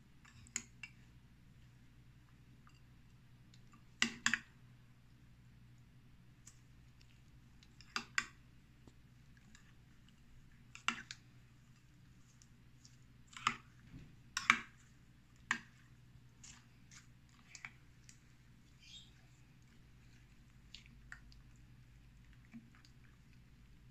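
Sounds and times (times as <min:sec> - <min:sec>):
faint steady hum: 0:00.0 - 0:23.9.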